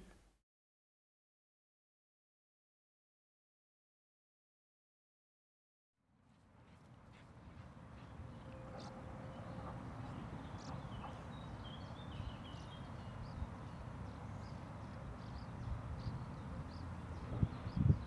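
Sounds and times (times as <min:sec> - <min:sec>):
small birds chirping: 0:06.7 - 0:18.0.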